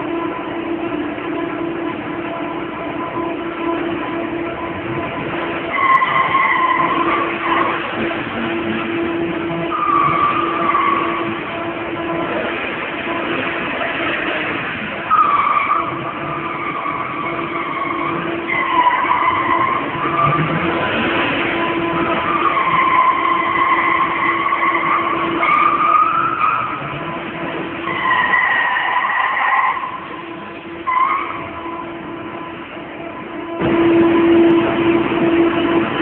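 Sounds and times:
tyres squealing on concrete: 5.7s - 7.8s, 9.7s - 11.3s, 15.1s - 20.5s, 22.0s - 26.9s, 27.8s - 30.2s, 30.8s - 31.6s.

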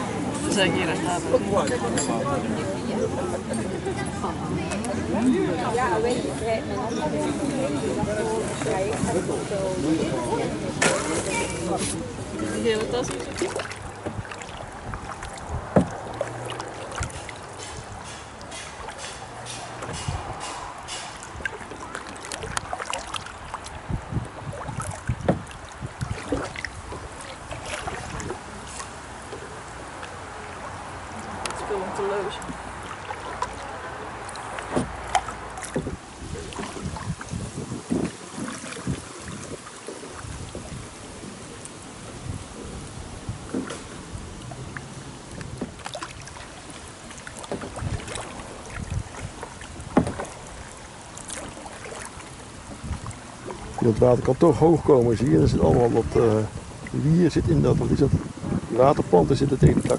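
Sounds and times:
paddle splashing and dripping water: 4.3s - 6.6s, 7.8s - 59.9s
wind rumble on microphone: 12.0s - 18.1s, 19.6s - 28.6s, 34.8s - 59.9s
small knocks on canoe: 12.7s - 23.3s, 24.1s - 28.4s, 34.2s - 41.4s, 43.3s - 44.0s, 44.6s - 54.6s.

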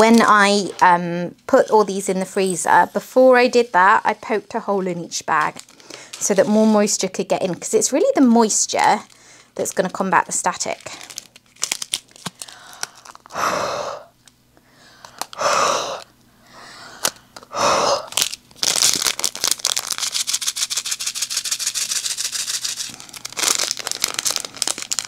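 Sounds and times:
plastic bags crinkling: 0.0s - 0.6s, 5.3s - 6.5s, 8.0s - 13.4s, 18.0s - 25.0s.

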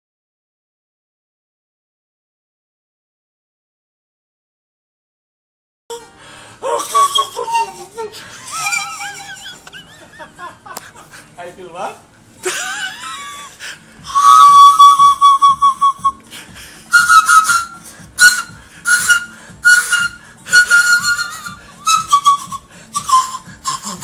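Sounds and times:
pan flute notes: 5.9s - 9.8s, 14.0s - 24.0s.

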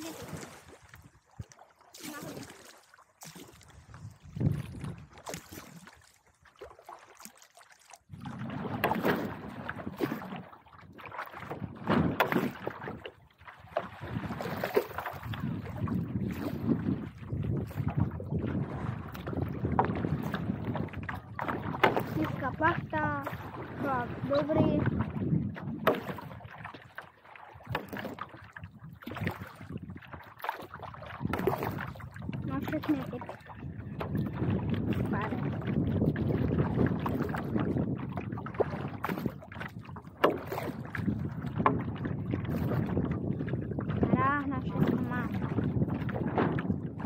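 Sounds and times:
water lapping and sloshing: 0.0s - 47.0s
wind buffeting microphone: 3.6s - 5.8s, 10.9s - 26.8s, 27.6s - 47.0s.

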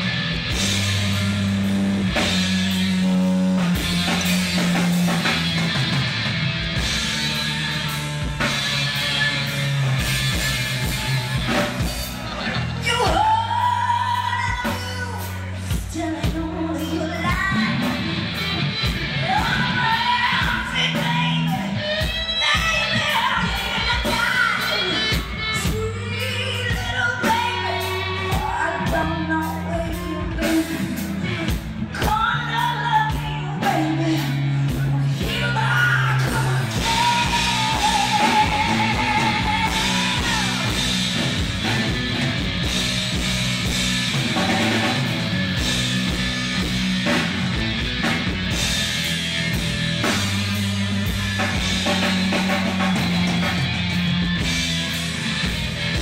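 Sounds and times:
rock band playing: 0.0s - 56.0s
woman singing: 12.8s - 18.0s, 19.2s - 41.0s.

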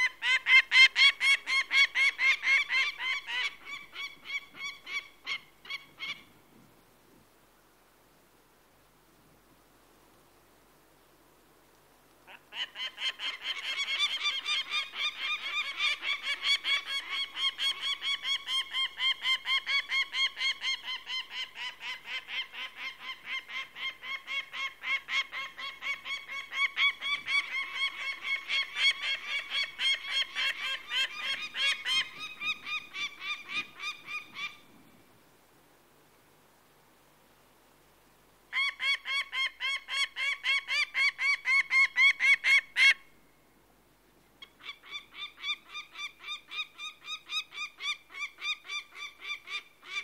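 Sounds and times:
falcon alarm calls: 0.0s - 6.3s, 12.3s - 34.7s, 38.5s - 43.1s.

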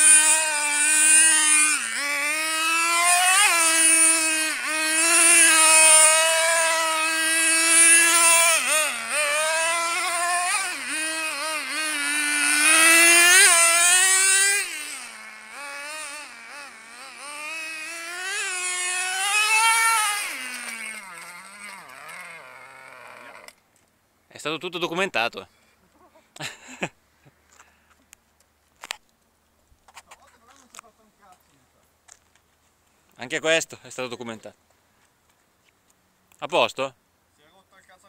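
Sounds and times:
model car engine revving: 0.0s - 23.6s.

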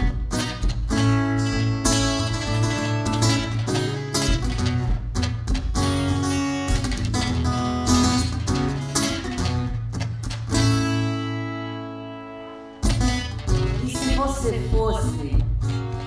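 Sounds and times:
acoustic guitar chords: 0.0s - 16.0s.

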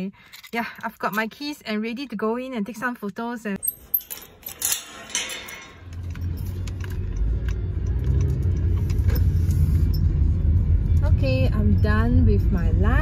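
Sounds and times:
keys jangling on metal latch: 3.6s - 10.1s
car rumble from inside cabin: 6.0s - 13.0s.

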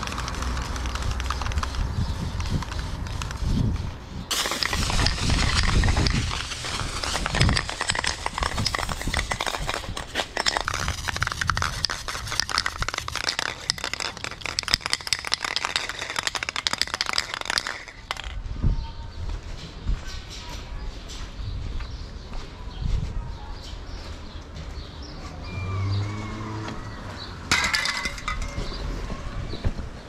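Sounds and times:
spray can hissing and sputtering: 4.3s - 18.4s.

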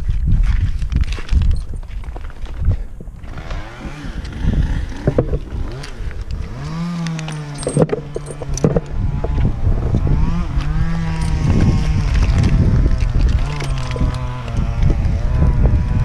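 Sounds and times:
metallic clinks of rope hardware: 1.3s - 2.1s, 5.1s - 9.0s, 10.7s - 14.6s
engine revving: 3.2s - 16.0s.

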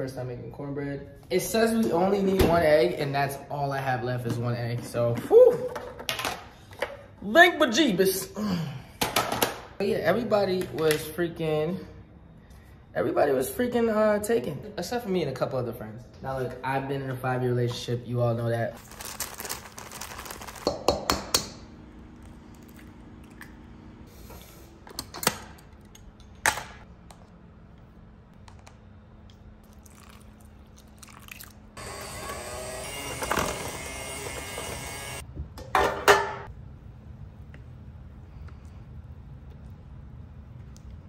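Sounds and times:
faint steady hum: 35.1s - 41.0s.

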